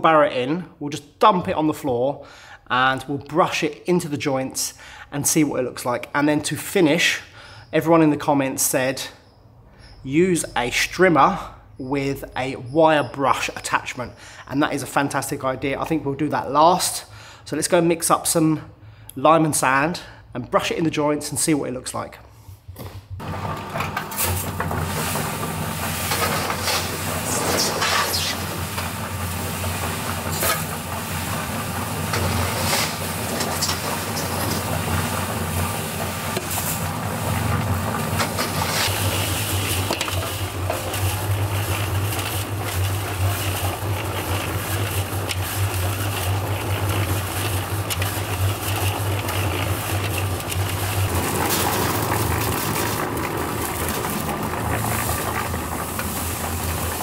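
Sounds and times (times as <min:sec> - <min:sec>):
cement mixer running: 0:23.1 - 0:57.0
dry mix pouring out: 0:23.2 - 0:57.0
gritty scraping: 0:23.3 - 0:57.0.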